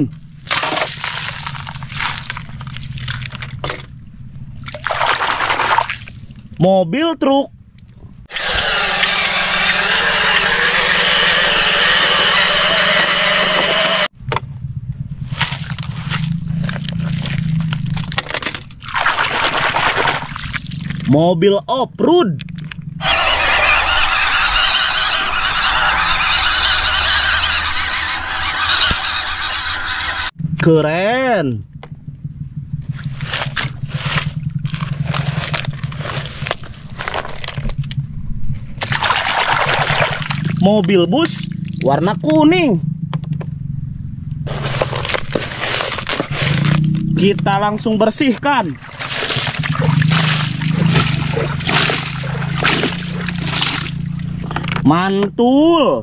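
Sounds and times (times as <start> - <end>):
wet gravel scraping in plastic: 0.5 - 3.6, 15.3 - 21.0, 33.0 - 37.9, 44.4 - 47.1, 48.8 - 54.0
low hum: 7.6 - 21.1, 22.4 - 38.8
toy truck motor whine: 8.3 - 14.1, 23.0 - 30.4
steady low hum: 21.9 - 37.0
plastic toys being handled: 44.5 - 46.8.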